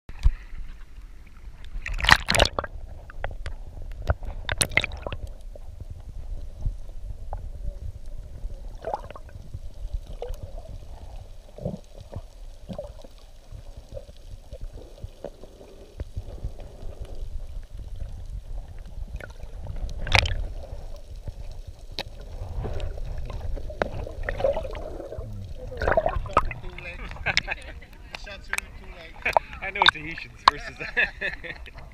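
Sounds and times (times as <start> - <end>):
underwater rumble and gurgling: 0.1 - 31.9
sharp splashes: 1.8 - 2.7, 25.7 - 27.4.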